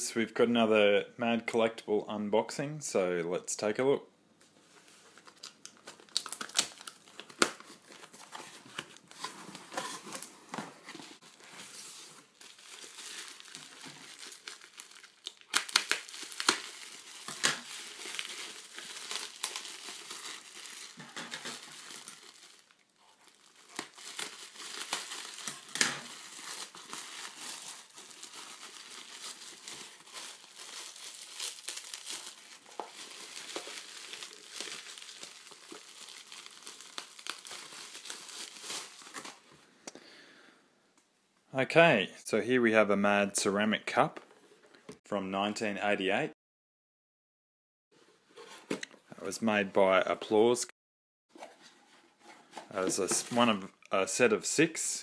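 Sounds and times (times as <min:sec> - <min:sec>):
bubble wrap crackling: 0:05.1 - 0:10.3, 0:11.0 - 0:39.5.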